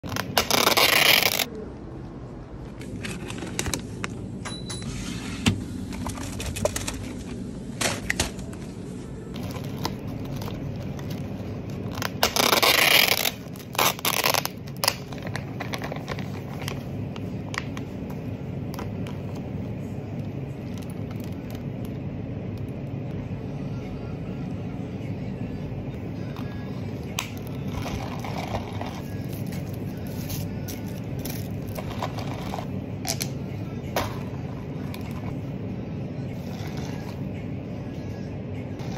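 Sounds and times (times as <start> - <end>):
low room hum: 0.0 - 38.9
plastic packaging tearing: 0.1 - 1.5, 11.8 - 16.4.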